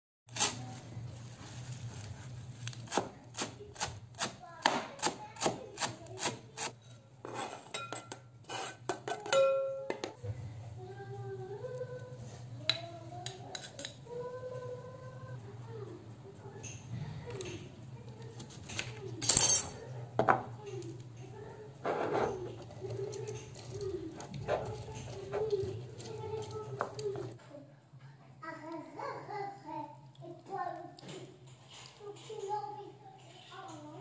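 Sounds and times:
knife scraping cutting board: 0:05.0 - 0:09.1, 0:21.8 - 0:27.3
glass bowl clinks: 0:07.8 - 0:08.2, 0:09.2 - 0:10.2.

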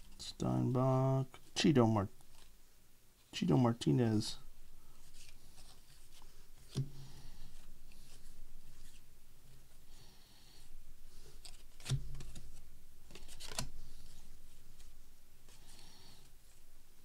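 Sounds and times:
cards sliding and rubbing: 0:05.0 - 0:09.1, 0:11.1 - 0:16.6.

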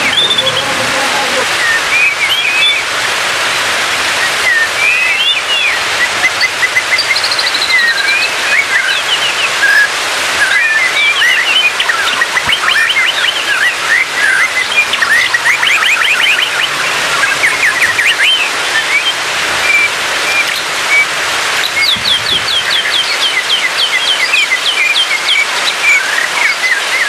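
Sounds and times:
bird singing whistled phrases: 0:00.0 - 0:02.9, 0:04.2 - 0:27.0.

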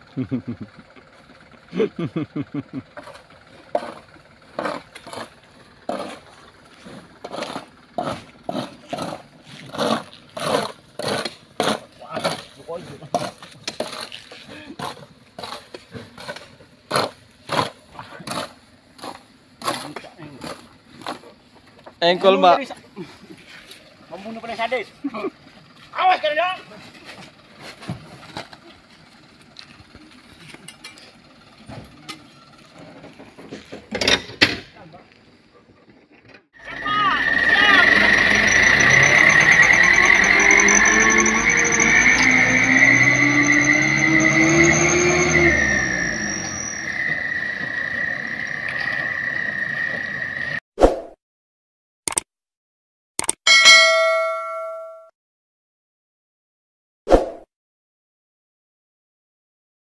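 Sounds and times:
scraping grit off gravel road: 0:03.0 - 0:21.6.

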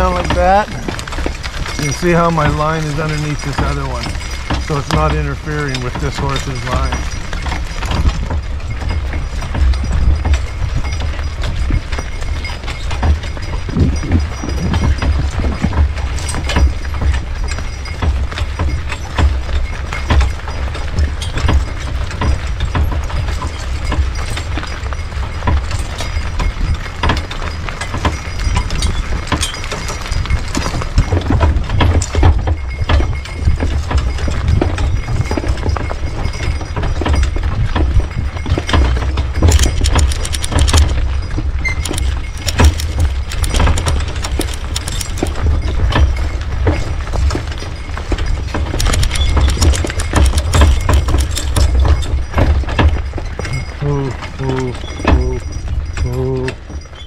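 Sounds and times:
hooves and harness clattering: 0:00.0 - 0:57.0.

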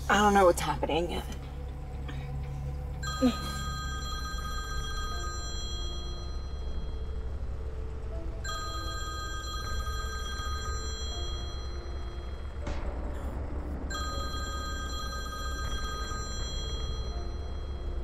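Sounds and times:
low background music: 0:00.0 - 0:18.0
phone ringtone: 0:02.9 - 0:12.6, 0:13.9 - 0:18.0.

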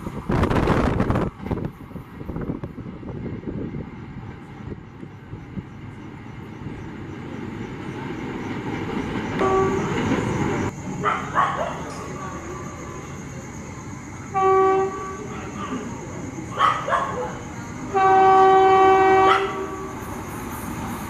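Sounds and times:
train rumbling on rails: 0:00.0 - 0:21.0
train horn blast: 0:09.4 - 0:10.3, 0:14.3 - 0:15.4, 0:17.9 - 0:20.0.

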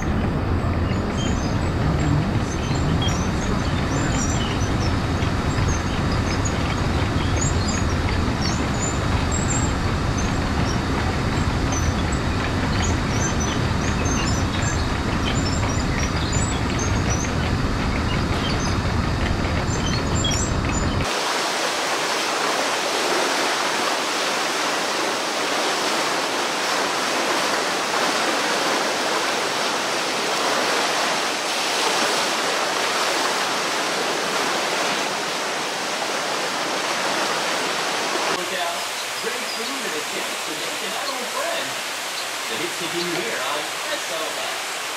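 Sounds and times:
small birds chirping: 0:00.0 - 0:10.8, 0:38.3 - 0:44.9
rushing river water: 0:00.0 - 0:44.9.

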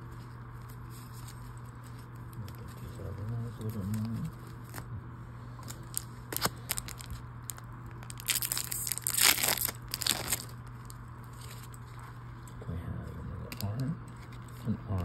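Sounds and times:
plastic wrapper tearing and crinkling: 0:05.6 - 0:12.1.

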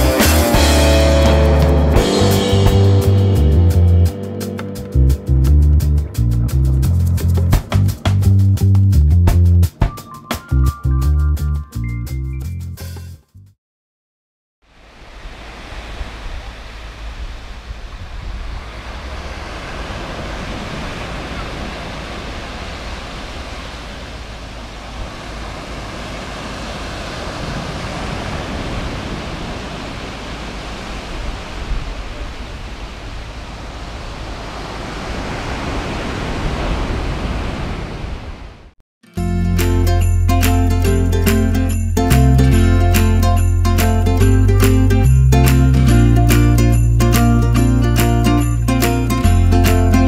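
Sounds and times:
ocean surf on sand beach: 0:14.7 - 0:38.8.

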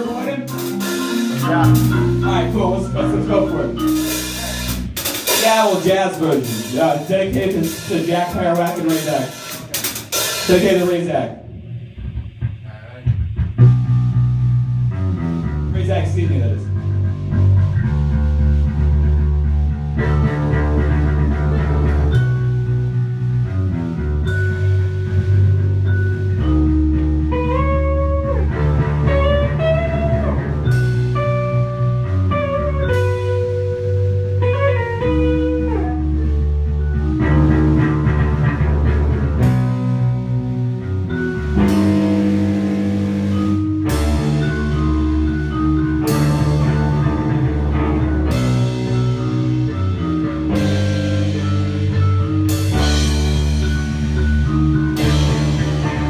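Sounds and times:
drum kit: 0:00.0 - 0:56.0
held bass notes: 0:00.0 - 0:56.0
electric guitar: 0:16.8 - 0:56.0.

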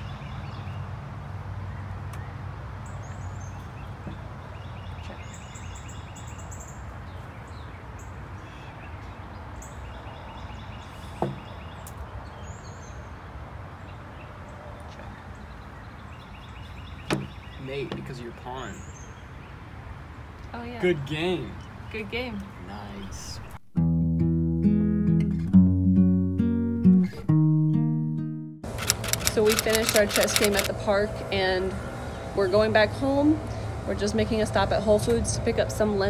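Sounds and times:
birds chirping: 0:01.7 - 0:23.6, 0:28.6 - 0:35.2.

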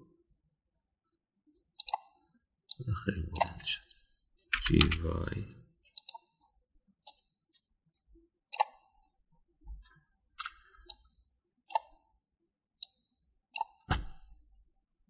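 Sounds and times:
computer mouse clicks: 0:01.8 - 0:02.2, 0:03.3 - 0:03.6, 0:05.9 - 0:06.4, 0:07.0 - 0:07.4, 0:08.5 - 0:09.0, 0:09.8 - 0:11.1, 0:11.7 - 0:12.0, 0:12.8 - 0:14.0.

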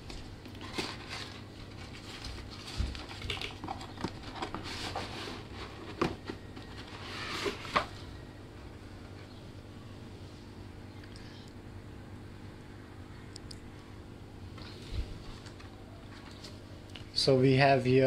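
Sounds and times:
cardboard and paper rustling: 0:00.0 - 0:08.1.

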